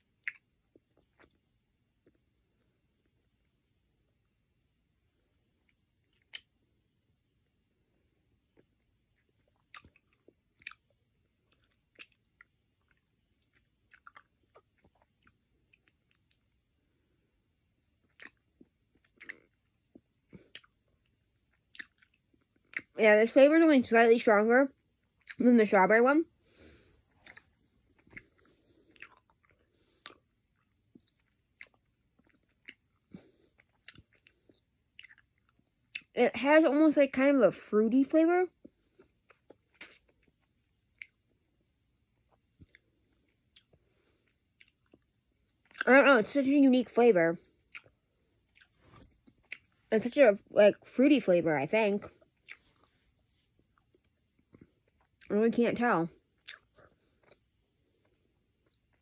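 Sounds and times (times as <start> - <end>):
person chewing candy: 0.0 - 1.4, 5.6 - 6.6, 8.5 - 16.7, 17.7 - 23.0, 25.0 - 25.5, 27.0 - 36.1, 38.6 - 45.9, 47.4 - 49.8, 52.1 - 55.3, 56.2 - 59.0.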